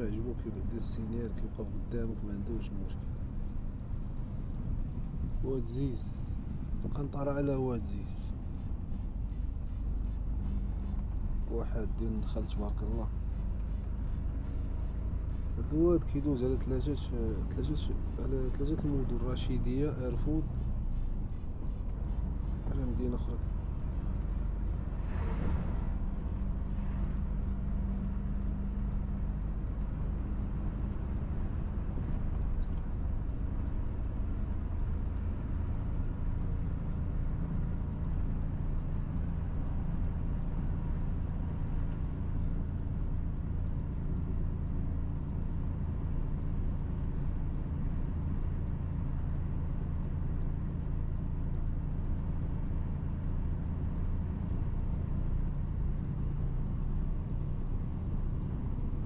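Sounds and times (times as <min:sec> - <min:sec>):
road noise: 0:00.0 - 0:59.0
truck engine drone: 0:00.0 - 0:59.0
passing lorry rush of air: 0:23.8 - 0:28.3.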